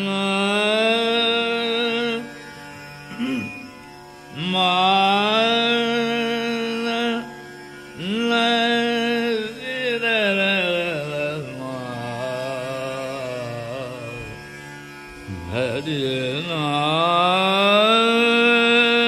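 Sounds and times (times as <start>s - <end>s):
man singing held sliding notes: 0.0s - 2.4s, 4.3s - 14.6s, 15.2s - 19.0s
steady drone: 8.0s - 19.0s.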